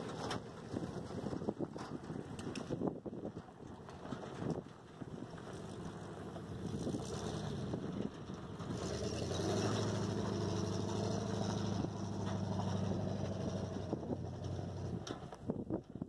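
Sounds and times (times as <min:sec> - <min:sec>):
pickup truck engine running: 0:03.5 - 0:15.4.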